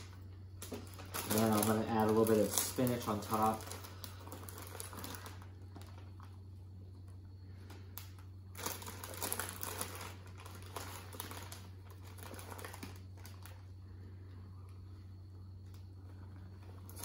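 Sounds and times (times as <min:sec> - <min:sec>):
plastic bag crinkling: 0:00.0 - 0:15.0, 0:15.6 - 0:17.0.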